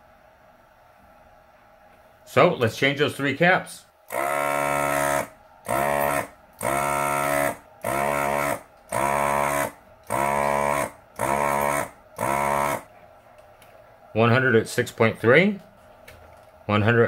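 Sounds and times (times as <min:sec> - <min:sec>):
electronic beeper buzzy tone: 0:04.1 - 0:12.9.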